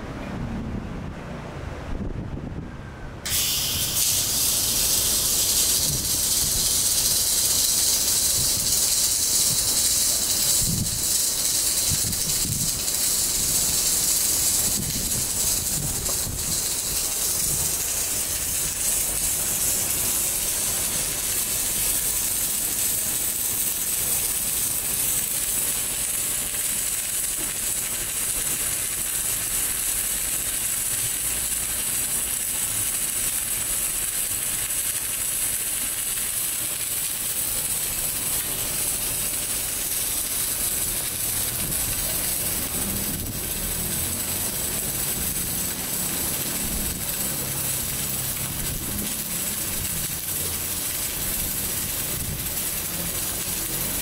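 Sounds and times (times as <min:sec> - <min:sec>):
welding hiss: 0:03.3 - 0:54.0.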